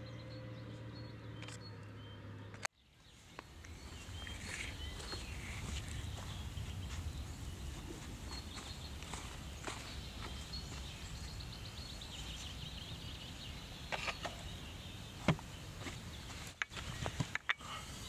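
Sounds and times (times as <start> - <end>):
birds chirping: 0.0 - 18.0
steady low rumble: 3.2 - 13.7.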